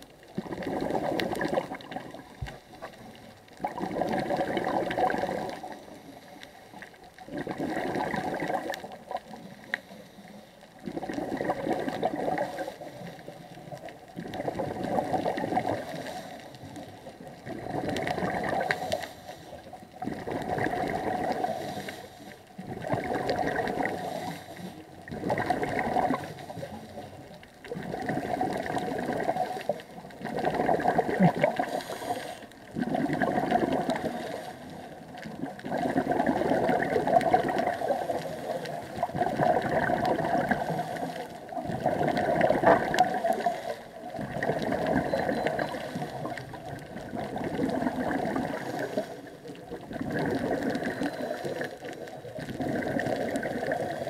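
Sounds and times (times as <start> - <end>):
gurgling bubbles: 0.0 - 9.9, 10.8 - 54.0
diver breathing through regulator: 15.6 - 16.7, 18.3 - 19.7, 21.0 - 22.5, 23.6 - 24.9, 31.4 - 32.6, 33.7 - 35.0, 40.6 - 41.4, 42.9 - 44.0, 48.4 - 49.4, 50.5 - 51.9.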